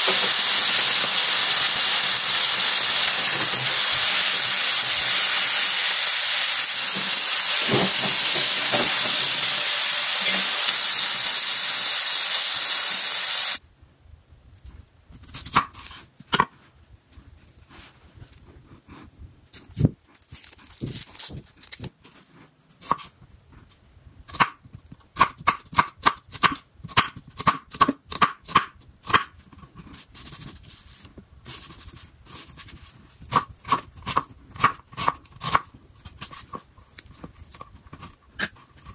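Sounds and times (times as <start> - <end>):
meat sizzling in frying pan: 0.0 - 13.6
knife chopping onion on board: 25.2 - 29.3, 33.3 - 36.6.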